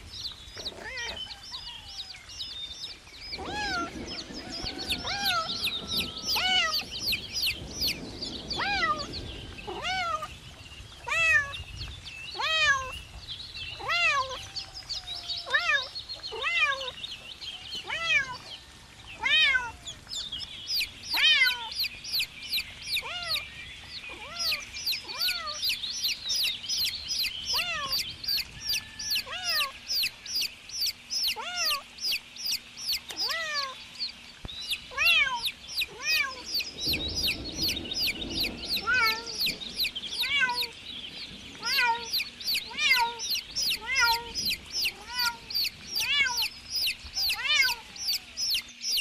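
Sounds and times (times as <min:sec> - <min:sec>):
chicks peeping: 0:00.0 - 0:10.2, 0:19.3 - 0:49.0
kitten meowing: 0:24.1 - 0:25.8, 0:28.7 - 0:29.7, 0:31.2 - 0:31.8, 0:34.9 - 0:36.6, 0:41.6 - 0:48.6.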